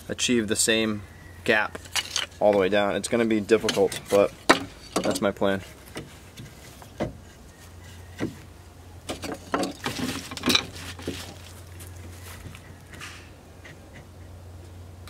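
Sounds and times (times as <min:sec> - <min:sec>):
wood scraping and rubbing: 0:01.5 - 0:14.4
wood knocking on wood: 0:03.6 - 0:07.4, 0:08.1 - 0:08.5.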